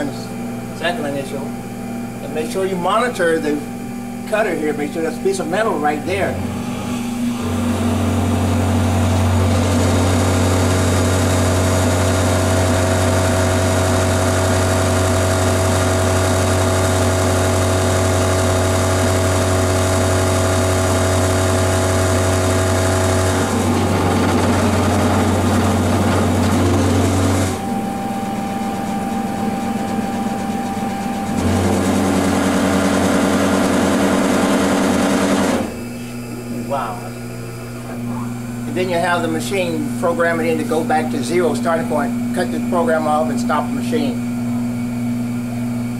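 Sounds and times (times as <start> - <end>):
milling machine motor hum: 0.0 - 45.9
thin whine: 17.2 - 45.9.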